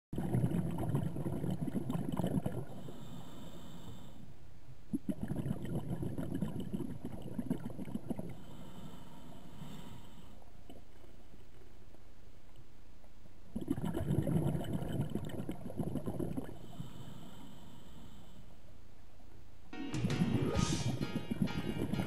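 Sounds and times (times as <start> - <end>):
bubbling exhalation underwater: 0.2 - 2.8, 4.9 - 8.4, 13.5 - 16.6.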